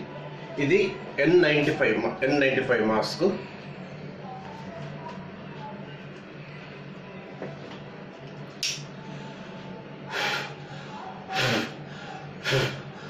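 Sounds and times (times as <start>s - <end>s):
forceful puffs of breath: 10.1s - 13.0s.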